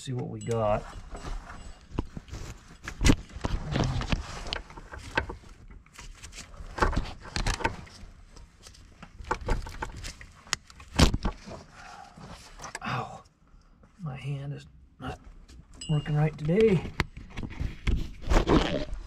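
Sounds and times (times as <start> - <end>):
wiring loom rattling and rustling: 9.1 - 11.6.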